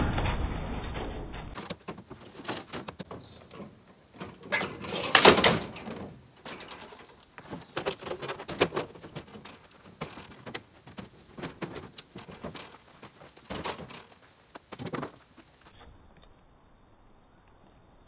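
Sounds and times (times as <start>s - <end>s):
junk clattering in truck bed: 1.5s - 15.2s.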